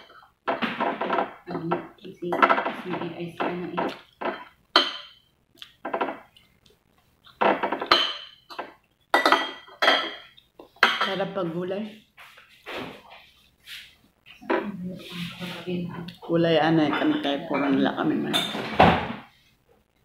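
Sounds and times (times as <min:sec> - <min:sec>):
person talking: 0:01.5 - 0:04.0, 0:11.0 - 0:12.1, 0:14.4 - 0:18.6.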